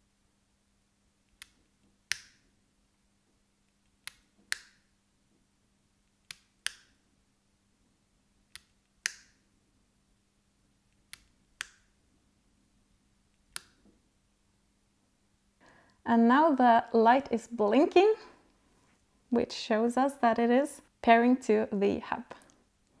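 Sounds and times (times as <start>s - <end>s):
lamp cord switch clicking: 1.4s - 2.4s, 4.0s - 4.9s, 6.2s - 7.0s, 8.5s - 9.4s, 13.5s - 13.8s.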